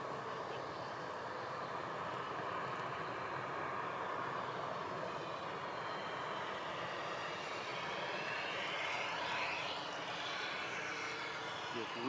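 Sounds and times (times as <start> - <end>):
model plane motor and propeller: 0.0 - 12.0
simulated piston engine sound: 5.7 - 12.0.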